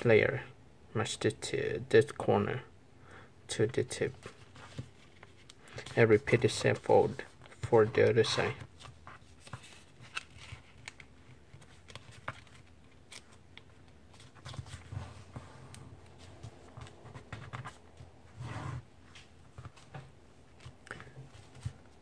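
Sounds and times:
paper rustling and creasing: 4.1 - 18.5.

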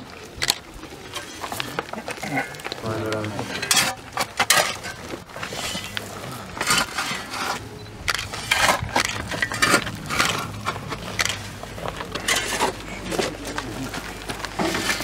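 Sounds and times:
shovel scraping dry soil: 3.4 - 15.0.

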